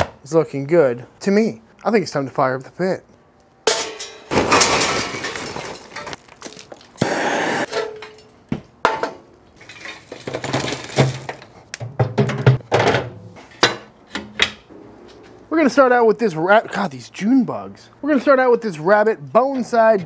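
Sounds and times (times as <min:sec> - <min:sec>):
metal grate clanking: 0:03.7 - 0:04.9
charcoal clattering and crackling: 0:03.7 - 0:07.0, 0:07.6 - 0:13.6.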